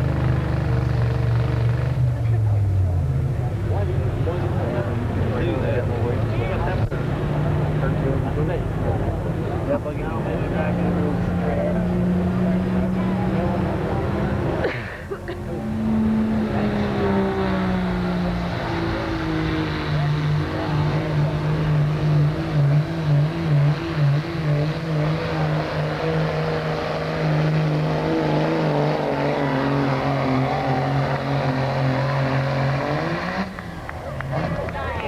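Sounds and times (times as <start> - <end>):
diesel pickup engine at full throttle: 0.0 - 35.0.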